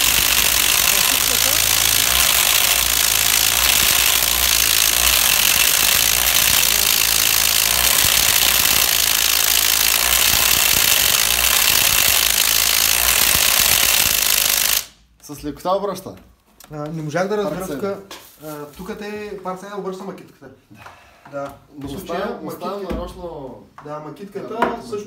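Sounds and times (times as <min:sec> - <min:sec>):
impact wrenches hammering: 0:00.0 - 0:14.8.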